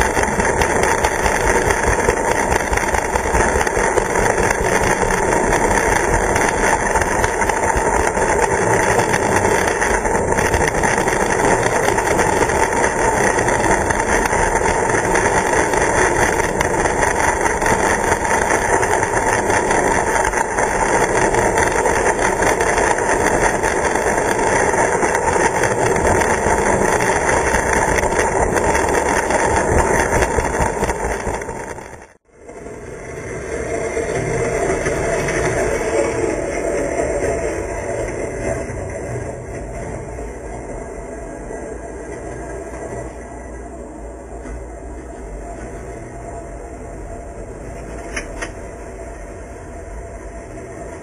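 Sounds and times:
model train motor whirring: 0:00.0 - 0:32.1
wheels running on track: 0:00.0 - 0:51.0.

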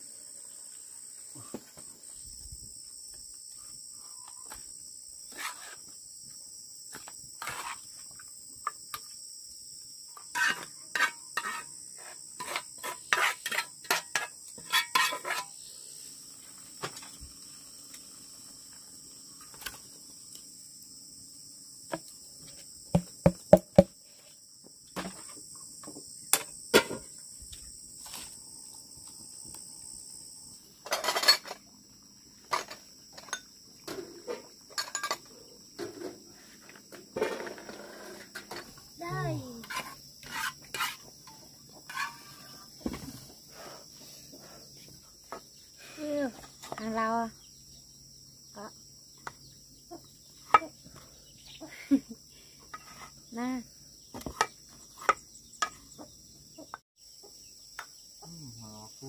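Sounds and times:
metal spatula scraping frying pan: 0:10.4 - 0:15.6, 0:39.6 - 0:41.0, 0:41.9 - 0:42.4
high-pitched insect drone: 0:36.4 - 0:42.9, 0:57.0 - 0:59.0.

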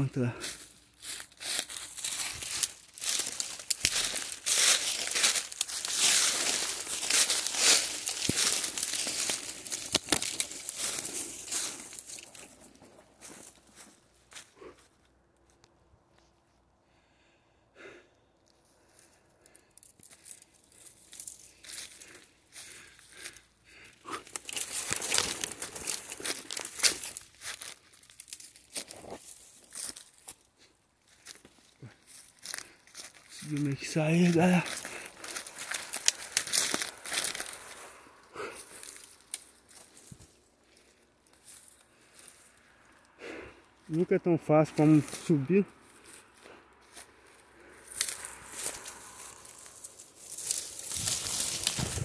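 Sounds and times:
footsteps crunching dry leaves: 0:00.0 - 0:14.9, 0:18.6 - 0:43.2, 0:43.8 - 0:52.0
branches brushing and scraping: 0:00.0 - 0:16.5, 0:18.4 - 0:43.2, 0:43.8 - 0:52.0
twigs snapping: 0:00.4 - 0:13.5, 0:19.4 - 0:30.4, 0:34.3 - 0:40.8, 0:47.8 - 0:52.0.

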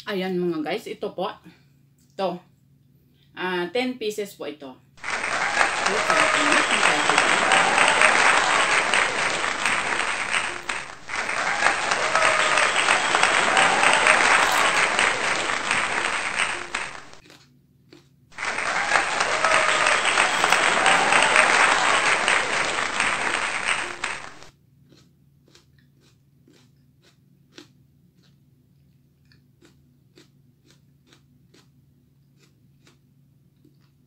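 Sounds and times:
applause: 0:05.0 - 0:17.2, 0:18.4 - 0:24.5
chewing crunches: 0:09.9 - 0:18.2, 0:24.8 - 0:34.0.

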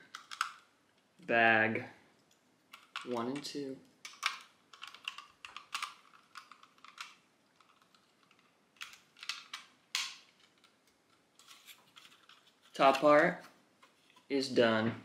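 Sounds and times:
plastic pieces clicking: 0:00.0 - 0:00.7, 0:02.2 - 0:13.3.

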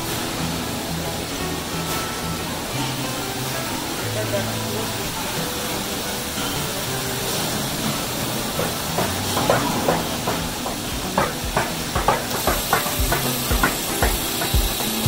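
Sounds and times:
machinery hiss: 0:00.0 - 0:15.0
bottles knocking on conveyor: 0:07.3 - 0:15.0
capping machine clacks: 0:07.3 - 0:15.0.

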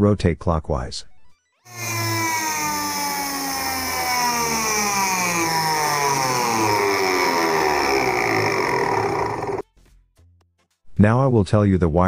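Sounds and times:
washing machine motor whining: 0:01.7 - 0:09.6.

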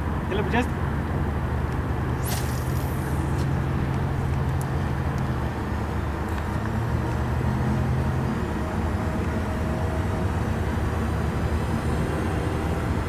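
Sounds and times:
low mechanical hum: 0:00.0 - 0:13.0
fishing line hissing off reel: 0:02.2 - 0:03.5.

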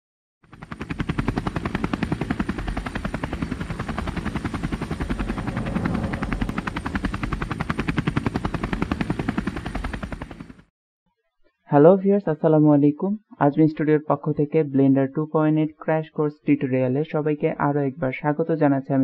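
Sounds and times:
aircraft propeller spinning: 0:00.4 - 0:10.7.

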